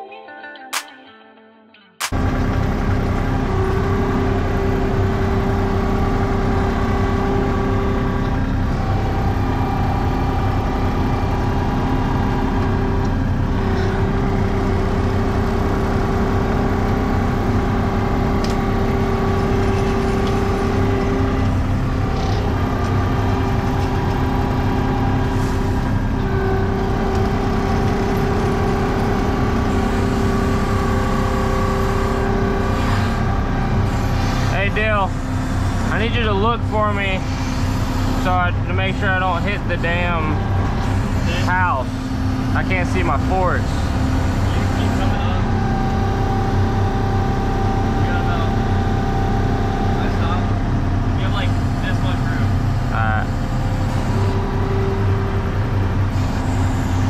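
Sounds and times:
diesel engine running: 0:02.0 - 0:57.0
steady whine: 0:02.0 - 0:57.0.

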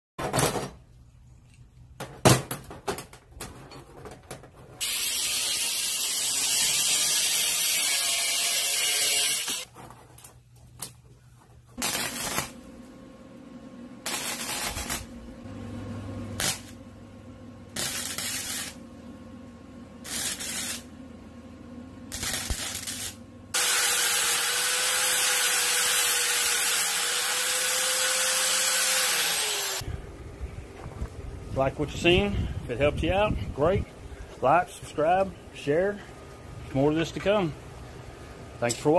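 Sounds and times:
angle grinder on steel: 0:04.8 - 0:09.7, 0:20.1 - 0:20.8, 0:22.1 - 0:29.8
mig welding bursts: 0:04.8 - 0:09.7, 0:11.8 - 0:12.7, 0:14.0 - 0:15.2, 0:16.4 - 0:16.8, 0:17.8 - 0:18.8, 0:20.0 - 0:20.9, 0:22.1 - 0:29.8.

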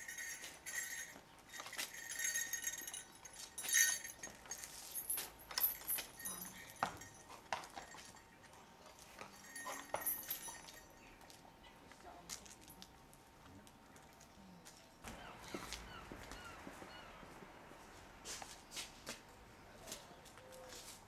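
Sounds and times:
metal harness fittings jingling: 0:00.0 - 0:11.2.

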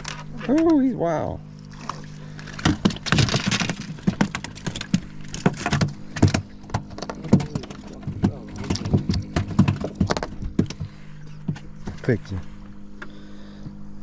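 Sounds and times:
fish knocking on boat deck: 0:02.5 - 0:12.0.

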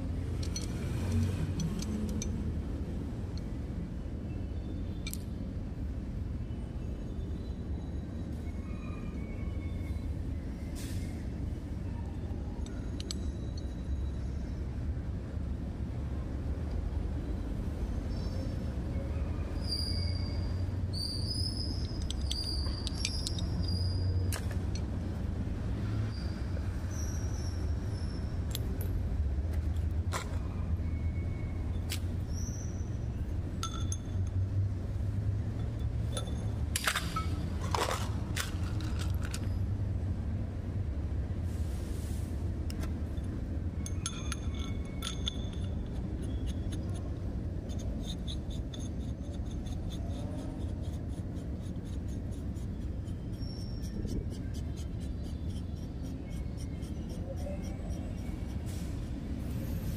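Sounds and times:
metal parts clinking and scraping: 0:00.3 - 0:02.4, 0:21.6 - 0:24.9, 0:33.6 - 0:34.4, 0:35.6 - 0:39.6, 0:43.0 - 0:54.4.

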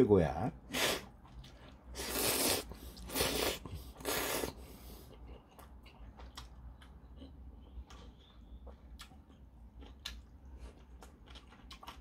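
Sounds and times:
man slurping noodles: 0:02.0 - 0:04.7.

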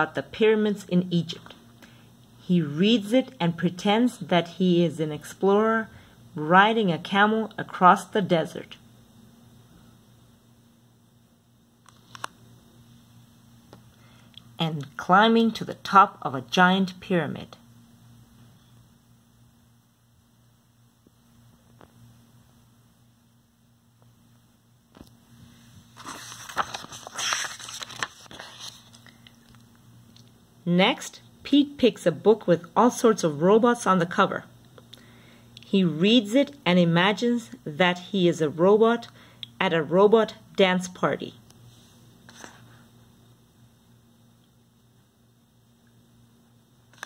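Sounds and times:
low steady hum: 0:00.0 - 0:47.0
book pages rustling: 0:11.9 - 0:12.4, 0:25.4 - 0:29.7, 0:41.9 - 0:42.8.

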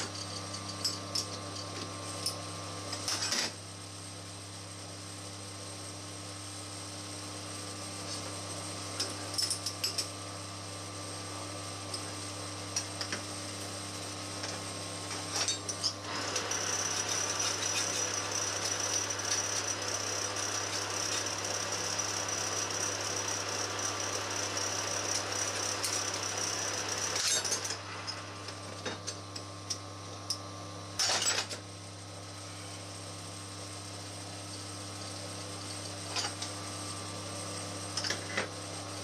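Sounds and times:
lathe running: 0:16.1 - 0:28.4.

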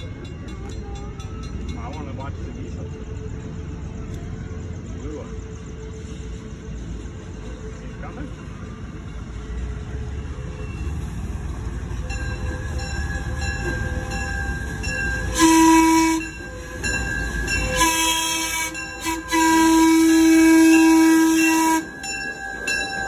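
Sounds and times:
diesel locomotive engine: 0:00.0 - 0:23.0
locomotive horn blasts: 0:15.2 - 0:22.1.

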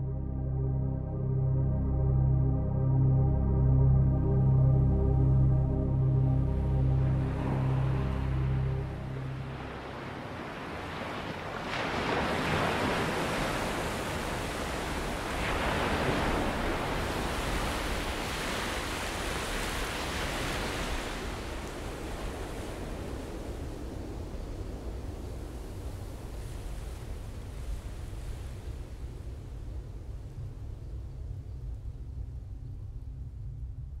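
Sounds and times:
surf washing over stony beach: 0:07.1 - 0:30.2.

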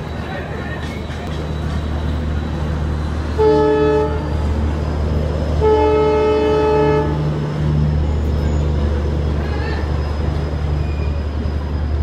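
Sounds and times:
locomotive horn blasts: 0:03.3 - 0:04.4, 0:05.6 - 0:07.3.

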